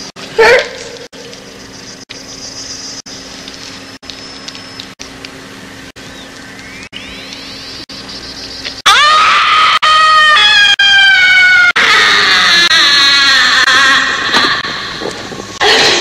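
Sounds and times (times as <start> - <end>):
droning hum: 0.0 - 10.2, 11.2 - 16.0
loud falling cry: 8.9 - 14.9.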